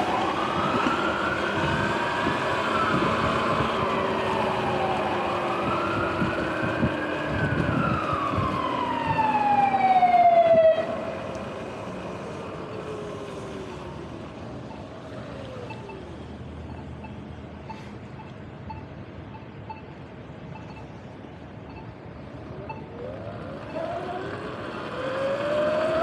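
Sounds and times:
emergency siren wailing: 0.0 - 16.4, 22.4 - 26.0.

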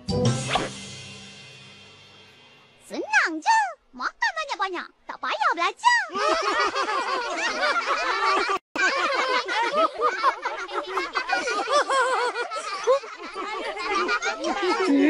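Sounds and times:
cartoon children laughing: 5.9 - 15.0.

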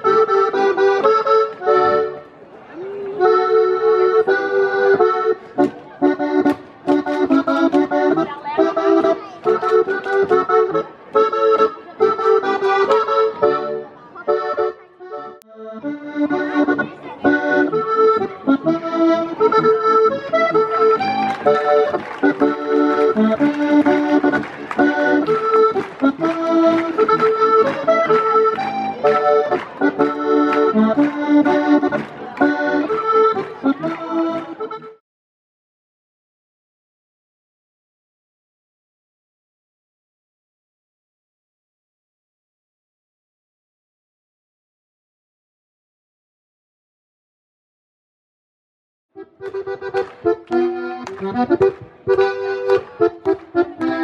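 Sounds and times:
accordion folk dance music: 0.0 - 35.0, 49.2 - 54.0.

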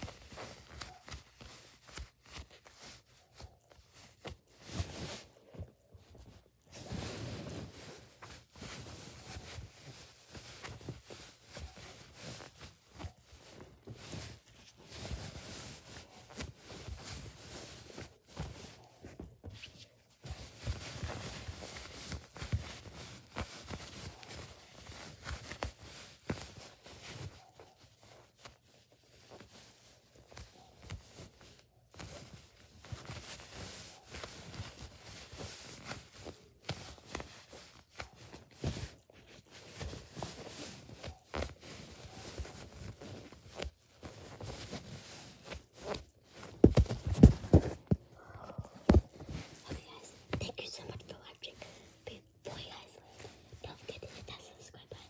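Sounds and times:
foam toys rustling and crackling: 0.0 - 55.0.

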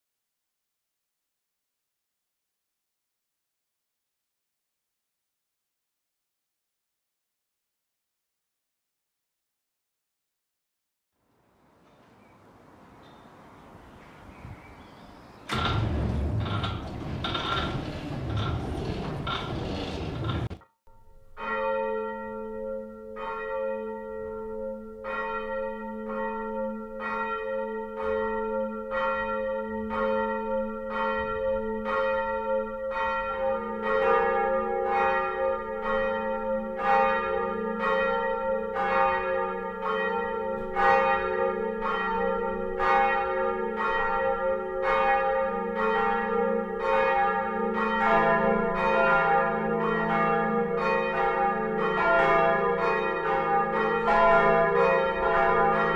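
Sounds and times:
church bells ringing: 12.0 - 17.3, 20.9 - 55.9.

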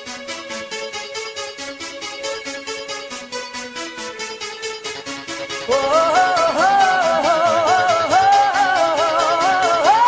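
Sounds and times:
quick electronic beat: 0.0 - 10.0
synth melody: 0.0 - 10.0
woman singing: 5.7 - 10.0.

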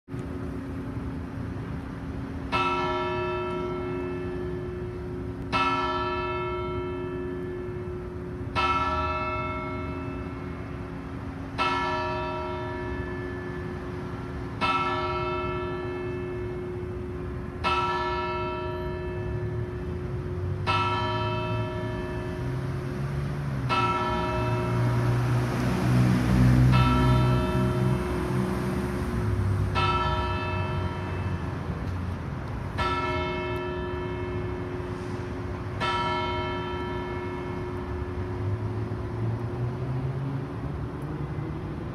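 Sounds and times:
church bell tolling: 2.5 - 11.0, 11.6 - 13.9, 14.6 - 22.6, 23.7 - 25.2, 26.7 - 28.4, 29.7 - 31.7, 32.7 - 38.4.

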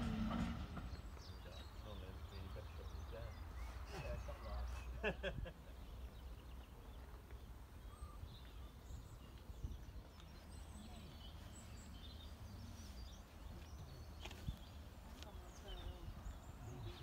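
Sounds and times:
faint birds chirping: 0.0 - 17.0.

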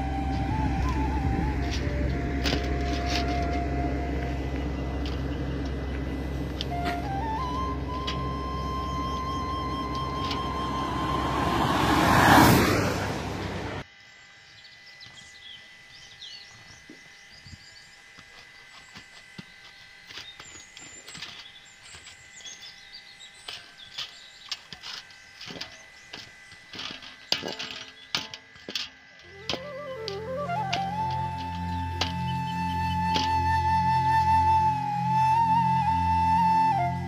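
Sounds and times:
birds chirping: 0.0 - 35.8
loud rushing noise: 9.2 - 13.8.

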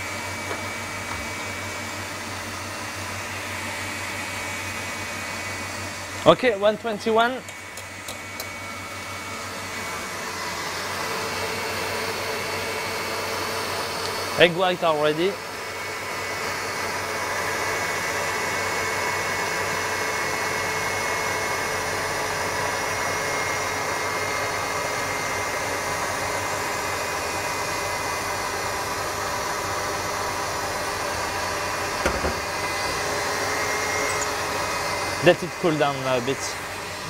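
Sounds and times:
stand mixer whirring: 0.0 - 37.0.

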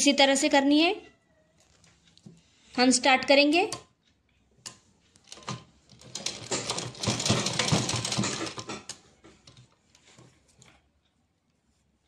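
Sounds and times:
sewing machine stitching: 5.2 - 9.7.

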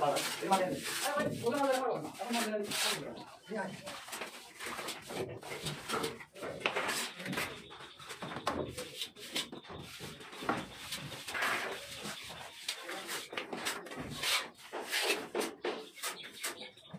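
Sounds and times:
trowel scraping mortar: 0.0 - 3.1, 4.6 - 7.5, 8.8 - 16.2.

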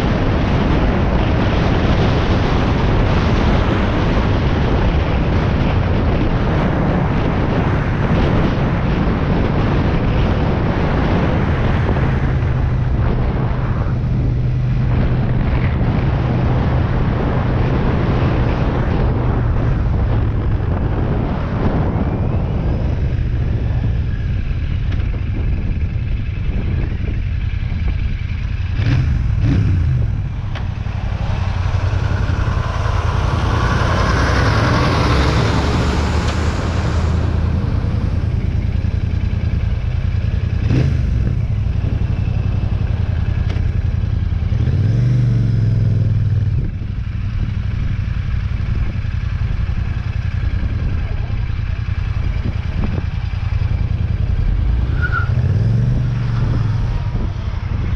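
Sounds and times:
motorcycle engine running: 0.0 - 57.9
large truck passing: 28.9 - 38.3.

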